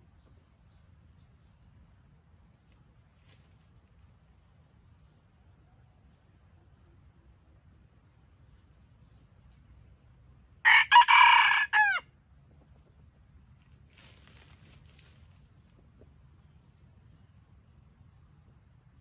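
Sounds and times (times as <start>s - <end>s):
rooster crowing: 10.6s - 12.1s.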